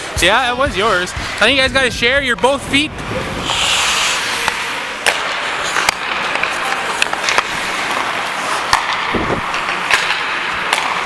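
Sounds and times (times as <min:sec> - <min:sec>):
skate blades scraping ice: 0:03.2 - 0:11.0
hockey sticks clacking: 0:03.5 - 0:11.0.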